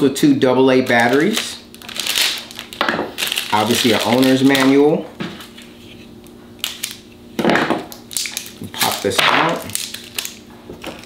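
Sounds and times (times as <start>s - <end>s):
plastic packaging crinkling and tearing: 0.8s - 5.8s, 6.6s - 7.1s, 7.9s - 11.0s.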